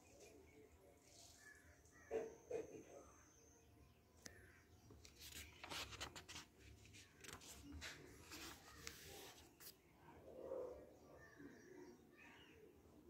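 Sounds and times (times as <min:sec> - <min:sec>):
paper booklet pages rustling: 0:04.8 - 0:09.9.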